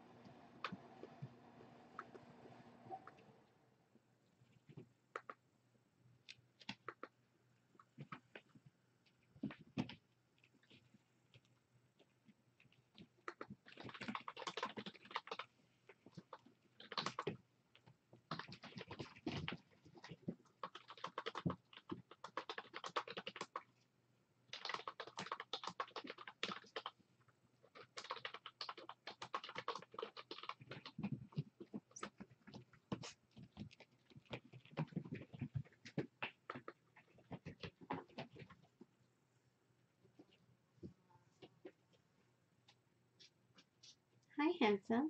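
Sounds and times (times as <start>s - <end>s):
computer keyboard typing: 13.2s - 15.5s, 16.2s - 17.4s, 18.3s - 23.7s, 24.5s - 27.0s, 27.6s - 38.6s.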